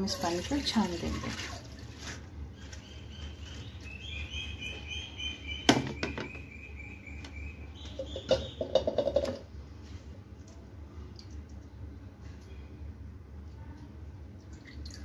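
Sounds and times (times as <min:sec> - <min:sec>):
small birds chirping: 0:02.5 - 0:09.0.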